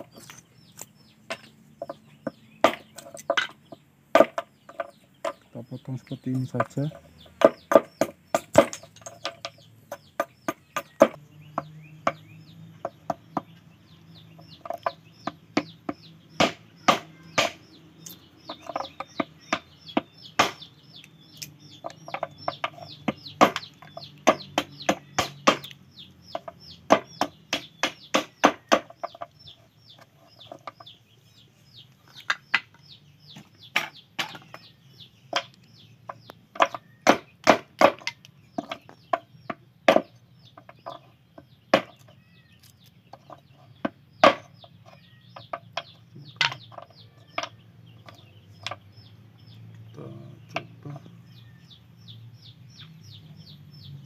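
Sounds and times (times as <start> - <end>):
blade chopping wood: 2.2 - 5.4, 6.6 - 13.5, 14.6 - 17.7, 18.5 - 20.7, 21.4 - 29.2, 35.3 - 41.0, 41.7 - 42.1, 43.8 - 44.6.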